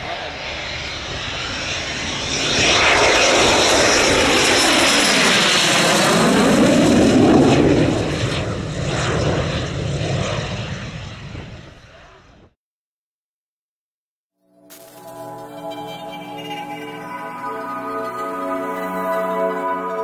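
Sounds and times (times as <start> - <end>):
jet passing low: 0.0 - 12.5.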